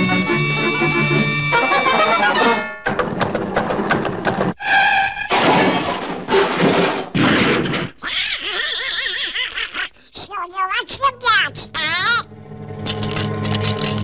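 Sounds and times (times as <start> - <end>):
cartoon duck squawking: 8.0 - 10.0.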